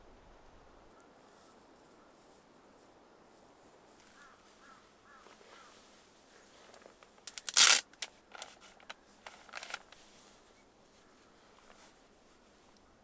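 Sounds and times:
plastic crinkling rustle: 6.5s - 12.8s
plastic packet ripping: 7.3s - 8.5s.

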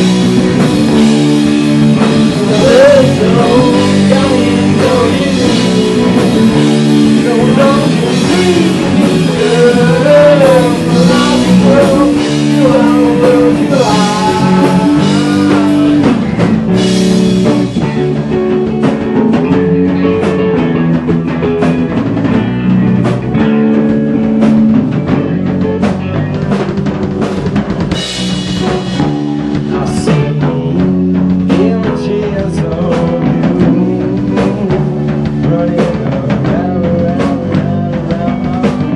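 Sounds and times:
bass guitar: 0.0s - 38.9s
drum kit: 0.0s - 38.9s
electric guitar: 0.0s - 38.9s.

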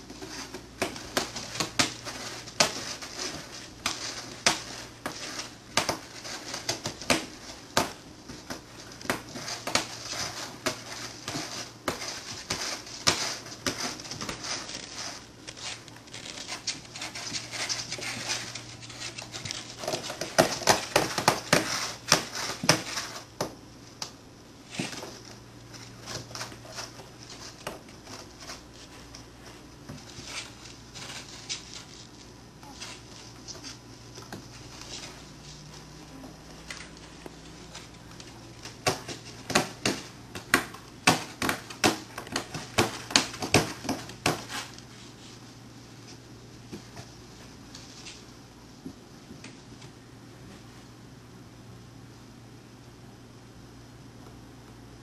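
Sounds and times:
kittens scratching cardboard: 0.0s - 23.3s.

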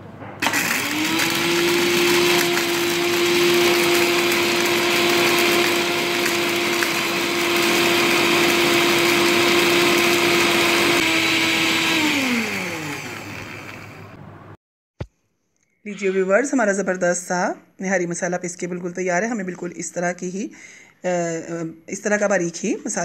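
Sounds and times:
electric spice grinder whining: 0.4s - 14.2s.

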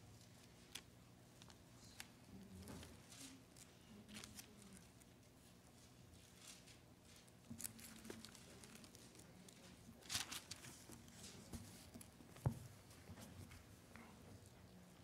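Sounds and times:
thin pages rustling: 5.8s - 12.5s.

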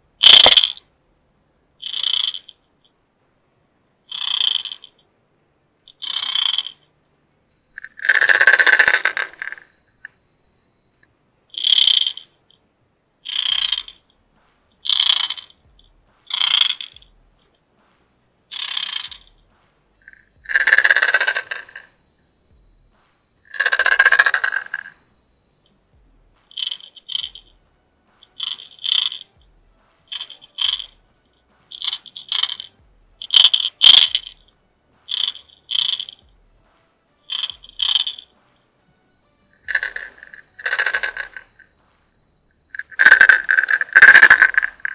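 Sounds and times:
fishing lure rattling underwater: 0.2s - 0.8s, 1.8s - 2.6s, 4.1s - 4.9s, 5.9s - 6.8s, 11.6s - 12.3s, 13.3s - 14.0s, 14.8s - 15.6s, 16.3s - 17.1s, 18.5s - 19.4s, 26.5s - 27.6s, 28.2s - 29.3s, 30.1s - 31.0s, 31.7s - 34.4s, 35.1s - 36.2s, 37.3s - 38.3s, 39.7s - 41.4s, 42.8s - 44.9s.

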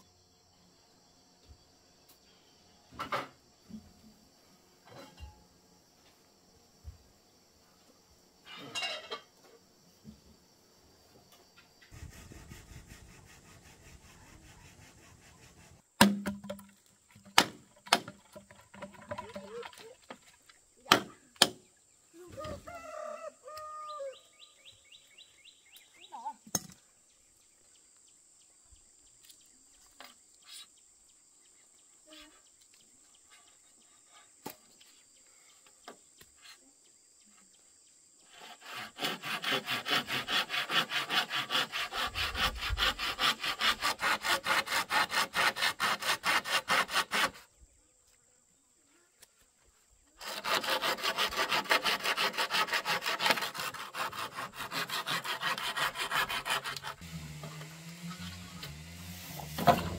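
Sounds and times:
saw cutting bamboo: 11.8s - 19.4s, 38.2s - 47.5s, 50.2s - 59.9s.

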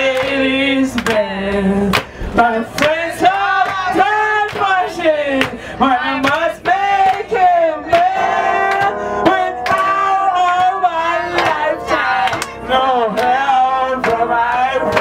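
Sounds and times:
man singing into microphone: 0.0s - 15.0s
sharp percussive hits: 7.9s - 13.4s.

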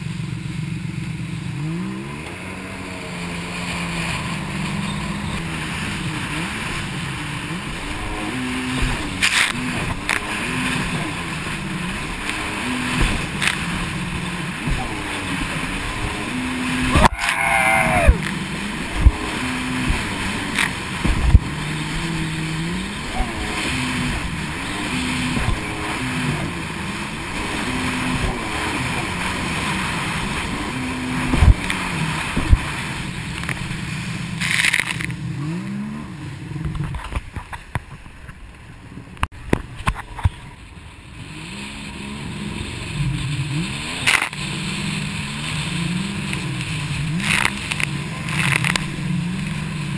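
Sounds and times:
jet ski engine running: 0.0s - 49.9s
water rushing and spraying: 0.0s - 49.9s
hull thumping on water: 3.1s - 35.1s.

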